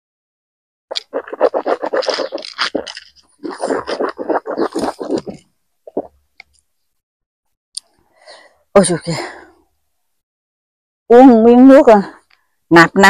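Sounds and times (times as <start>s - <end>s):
handling rustling and scraping: 0.9s - 5.5s.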